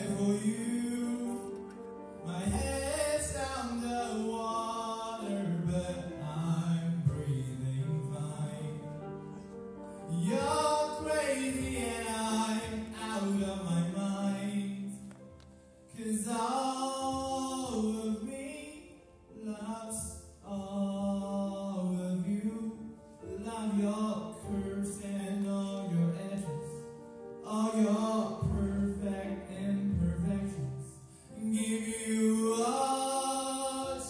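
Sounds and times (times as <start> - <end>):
person singing: 0.0 - 9.0, 10.1 - 15.1, 27.4 - 34.0
grand piano accompaniment: 0.0 - 34.0.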